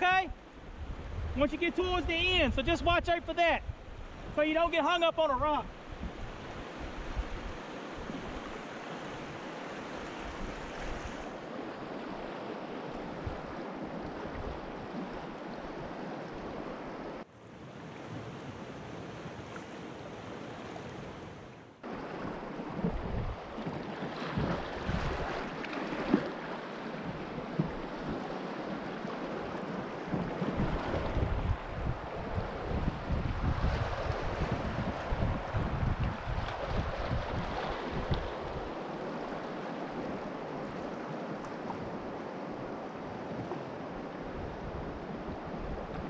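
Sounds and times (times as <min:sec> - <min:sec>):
wind buffeting microphone: 0:00.6 - 0:04.4, 0:05.7 - 0:08.6, 0:21.9 - 0:25.5, 0:30.0 - 0:41.0
knocks and splashes: 0:22.1 - 0:28.8, 0:29.8 - 0:31.5.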